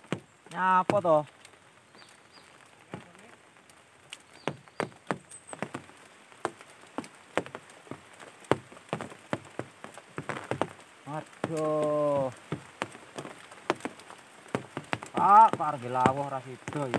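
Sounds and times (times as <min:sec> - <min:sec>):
faint steady hiss: 0:00.0 - 0:16.9
sharp taps: 0:04.4 - 0:05.8, 0:11.4 - 0:16.9.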